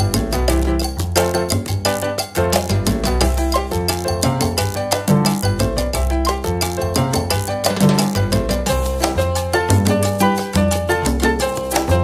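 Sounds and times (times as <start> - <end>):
upbeat latin-style music: 0.0 - 12.0.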